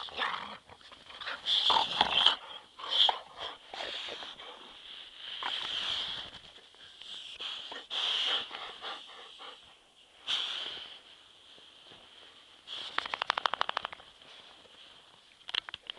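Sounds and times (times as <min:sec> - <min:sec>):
fast sharp crackles: 0:12.8 - 0:14.1.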